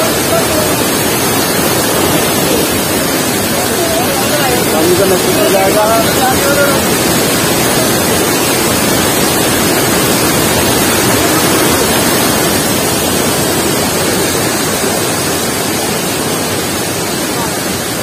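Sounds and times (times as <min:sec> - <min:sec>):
waterfall rushing: 0:00.0 - 0:18.0.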